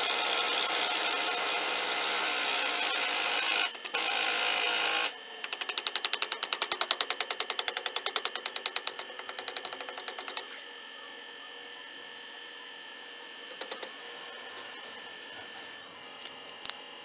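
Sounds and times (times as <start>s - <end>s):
electrical hum with tones: 0.0s - 17.0s.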